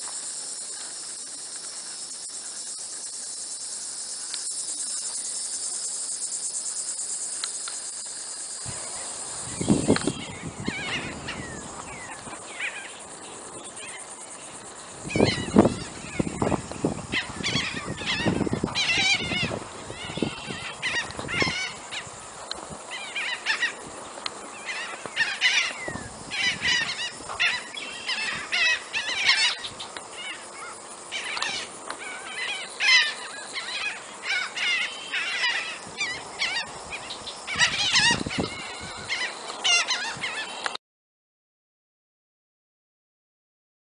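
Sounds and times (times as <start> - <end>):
gulls squawking: 9.6 - 13.0, 15.0 - 22.1, 24.6 - 40.6.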